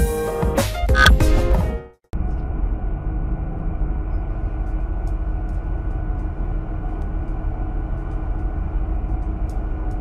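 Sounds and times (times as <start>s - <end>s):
low engine rumble: 2.1s - 10.0s.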